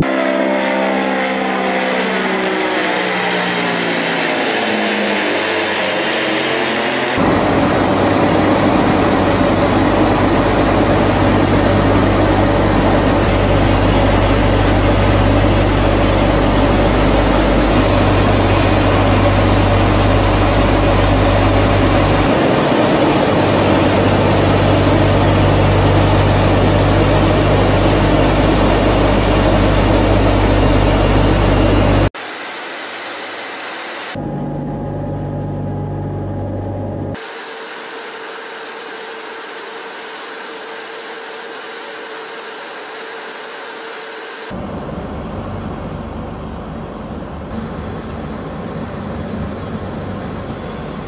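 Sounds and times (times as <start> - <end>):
turboprop engines droning: 0.0 - 51.0.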